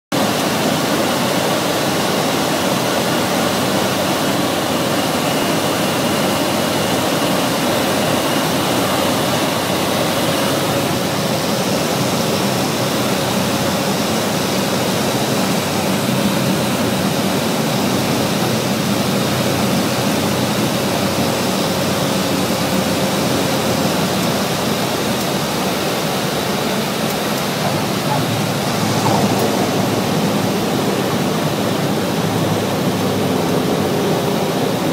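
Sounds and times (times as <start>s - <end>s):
engine and propeller drone: 0.1s - 34.9s
airflow rush: 26.0s - 34.9s.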